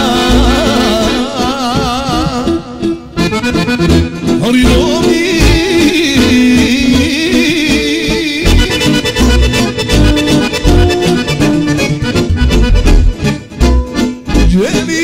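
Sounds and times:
accordion lead melody: 0.0 - 15.0
pounding bass and drum beat: 8.5 - 14.8.

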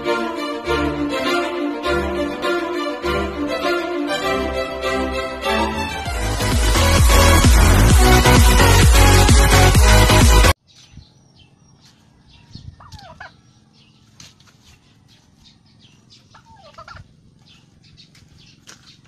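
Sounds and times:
turkey calling: 12.4 - 13.5, 16.2 - 18.2.

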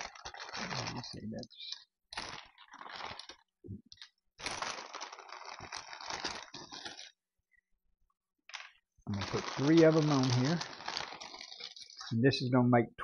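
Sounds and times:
plastic bag crinkling: 0.0 - 7.2, 8.5 - 12.2
brittle shells clattering: 4.0 - 7.1, 8.5 - 12.1.

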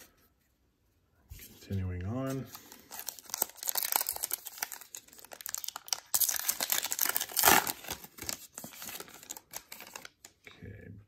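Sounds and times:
plastic wrapper tearing and crinkling: 2.5 - 10.3.

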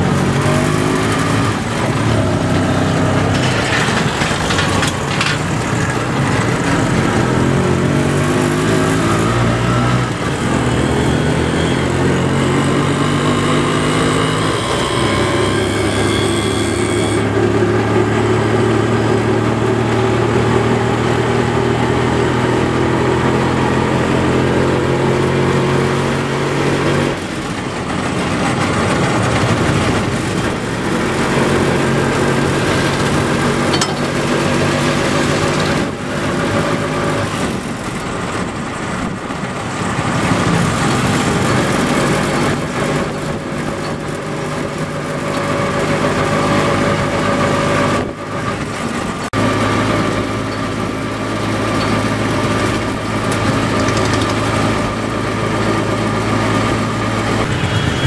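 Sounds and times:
small engine running: 0.0 - 58.0.

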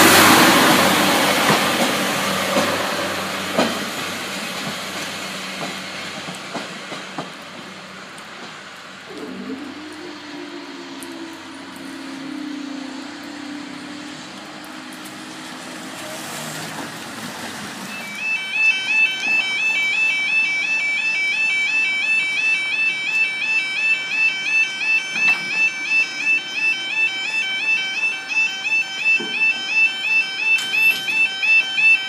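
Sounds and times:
level crossing two-tone alarm: 9.2 - 15.5, 17.9 - 32.0.

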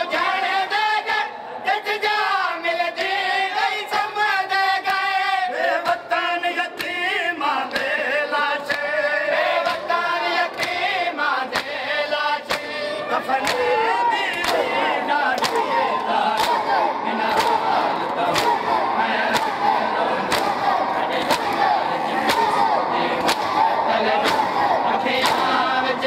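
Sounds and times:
crowd chanting a lament: 0.0 - 26.0
chest-beating slaps: 15.4 - 25.7.

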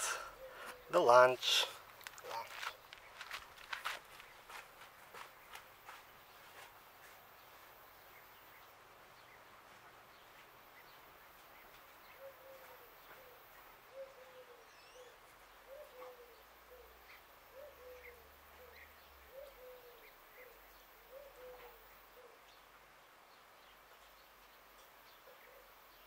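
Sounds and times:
dove cooing: 0.0 - 1.0, 12.1 - 22.5
small birds chirping: 0.0 - 26.0.

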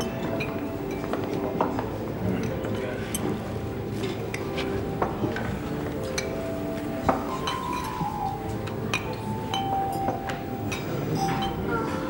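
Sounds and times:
background music: 0.0 - 12.0
wine glasses clinking: 7.0 - 11.7.

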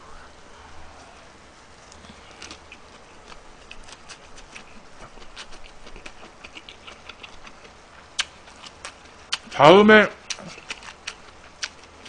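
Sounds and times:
wet chewing clicks and smacks: 1.9 - 9.6, 10.2 - 12.0.

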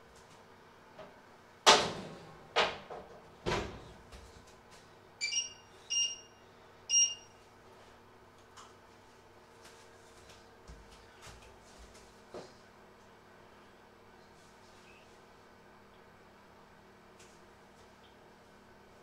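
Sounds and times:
short electronic beeps: 5.2 - 7.3.

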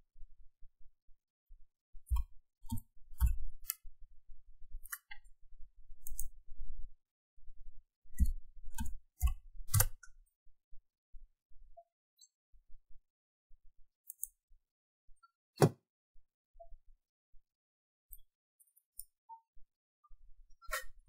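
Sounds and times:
mouse clicks: 6.0 - 6.4, 8.2 - 10.1.

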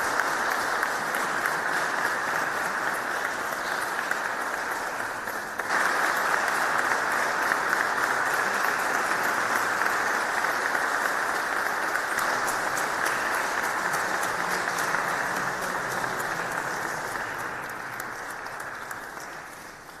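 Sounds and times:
audience applauding: 0.0 - 20.0.

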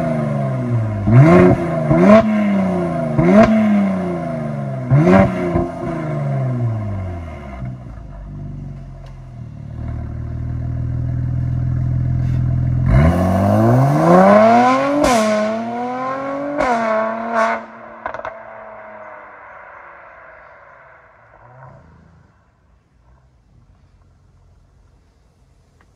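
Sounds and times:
car engine accelerating hard: 0.0 - 8.2, 9.6 - 20.5
exhaust crackles: 0.0 - 25.9.

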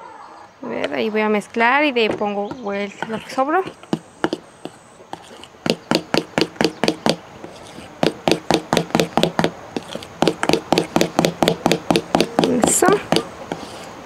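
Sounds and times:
utensil knocking against bowl: 2.1 - 7.2, 8.0 - 13.6.

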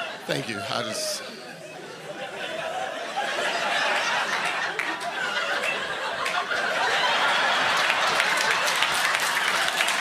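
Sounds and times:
audience laughing: 0.0 - 10.0
people clapping: 3.9 - 10.0.

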